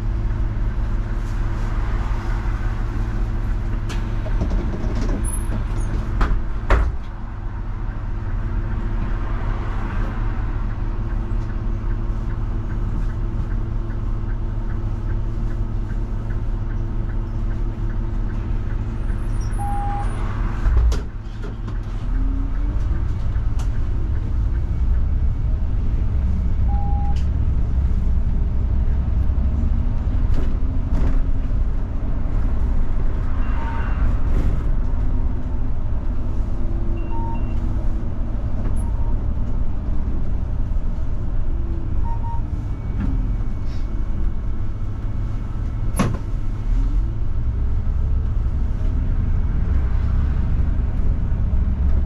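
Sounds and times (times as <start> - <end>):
bus engine idling: 0.0 - 33.2, 34.7 - 52.0
short beeps: 19.4 - 20.2, 26.7 - 27.3, 37.0 - 37.6
thump: 46.0 - 46.3.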